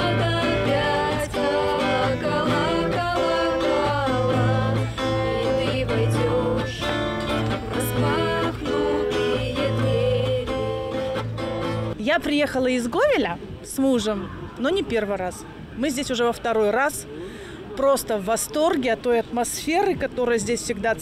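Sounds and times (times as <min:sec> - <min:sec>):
women singing: 0:00.0 - 0:11.3
acoustic guitar playing: 0:00.0 - 0:12.5.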